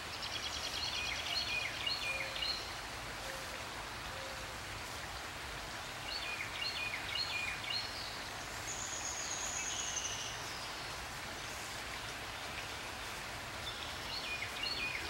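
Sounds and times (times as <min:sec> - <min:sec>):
songbird singing: 0:00.0 - 0:03.4, 0:06.1 - 0:11.0, 0:12.0 - 0:15.0
light rain on water: 0:00.0 - 0:15.0.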